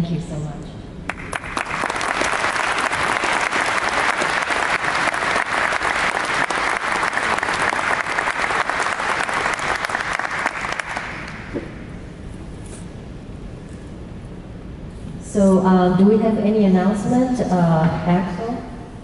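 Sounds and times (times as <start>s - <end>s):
audience applauding: 1.1s - 11.6s.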